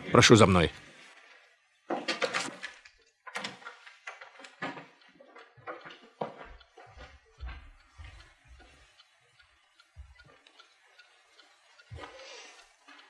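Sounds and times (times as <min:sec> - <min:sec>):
footsteps on hard floor: 0:05.6 - 0:08.8, 0:10.0 - 0:10.2.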